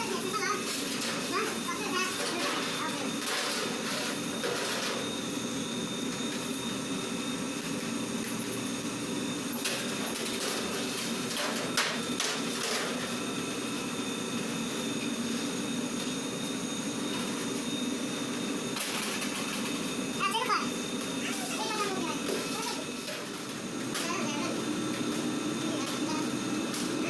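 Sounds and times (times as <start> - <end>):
dough machine humming: 0.0 - 27.0.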